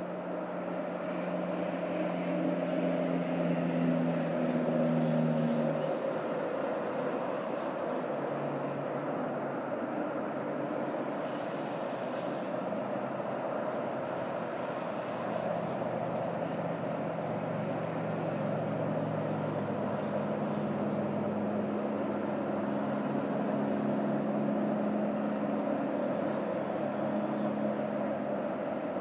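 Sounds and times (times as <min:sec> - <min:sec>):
distant engine drone: 0:00.0 - 0:29.0.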